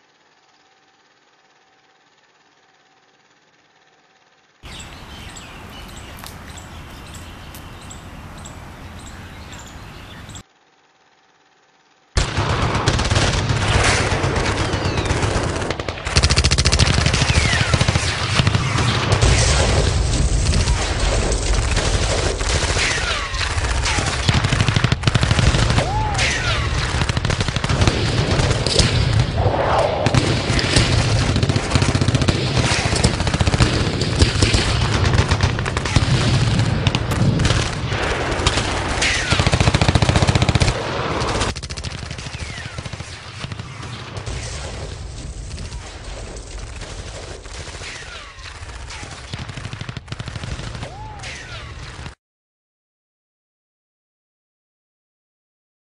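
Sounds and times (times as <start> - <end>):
automatic rifle gunfire: 12.2 - 29.4, 30.0 - 52.2.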